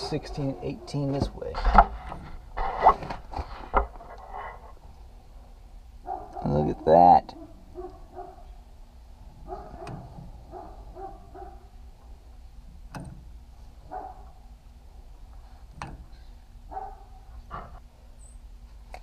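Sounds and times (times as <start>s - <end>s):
dog barking: 6.0s - 8.5s, 9.4s - 11.7s, 13.9s - 14.4s, 16.7s - 17.7s.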